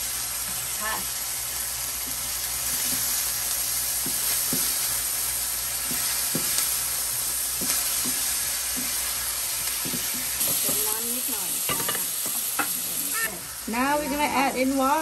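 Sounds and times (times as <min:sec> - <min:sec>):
food sizzling in frying pan: 0:00.0 - 0:15.0.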